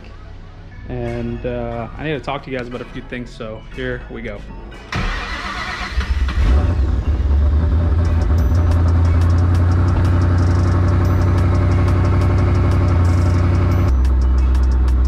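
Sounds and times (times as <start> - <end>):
car engine idling: 4.9 - 15.0.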